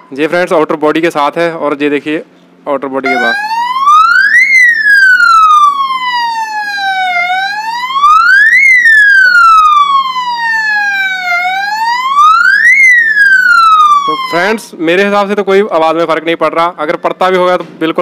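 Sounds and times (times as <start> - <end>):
electronic siren wailing: 3.0 - 14.7.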